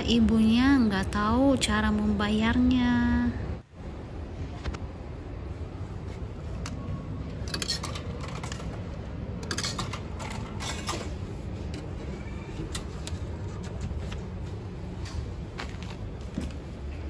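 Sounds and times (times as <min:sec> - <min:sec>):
steady low hum: 0:00.0 - 0:17.0
coins clinking into slot: 0:07.5 - 0:08.7, 0:09.4 - 0:11.2.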